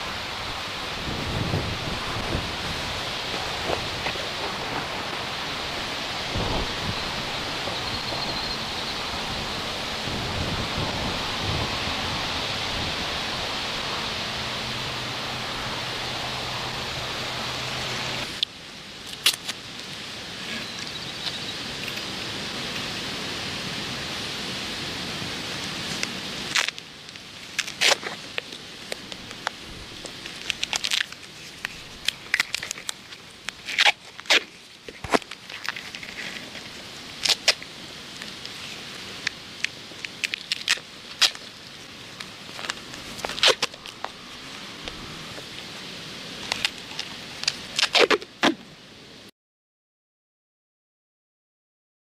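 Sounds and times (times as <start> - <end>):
steady outdoor hiss: 0.0 - 49.3
duct tape pulled off roll: 18.2 - 19.6, 26.0 - 26.8, 27.4 - 45.6, 46.4 - 48.6.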